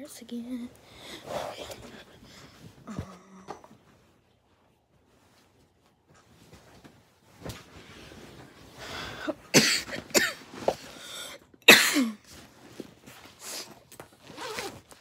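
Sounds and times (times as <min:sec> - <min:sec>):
boy coughing: 0:09.5 - 0:10.4, 0:11.7 - 0:12.2.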